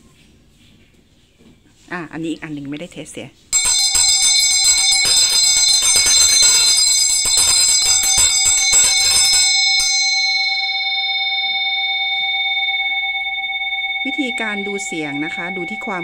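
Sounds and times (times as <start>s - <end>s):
bell ringing with sustained resonance: 3.5s - 16.0s
bell clapper striking rapidly: 3.6s - 10.9s.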